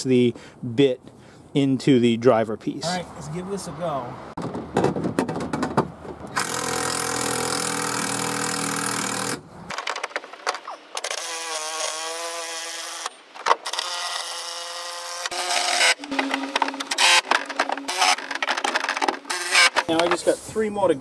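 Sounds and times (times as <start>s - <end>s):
cordless drill motor whining: 6.4s - 9.4s, 11.0s - 19.8s.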